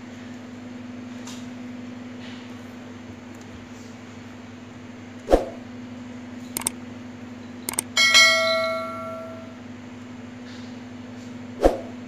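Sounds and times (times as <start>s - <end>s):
steady low hum: 2.7s - 10.0s
mouse clicks: 7.7s - 7.9s
notification bell chime: 8.0s - 9.5s.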